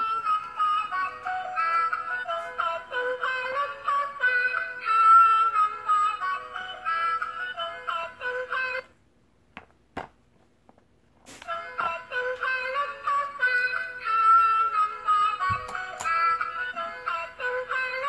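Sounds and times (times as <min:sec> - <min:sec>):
electronic toy song: 0:00.0 - 0:08.8.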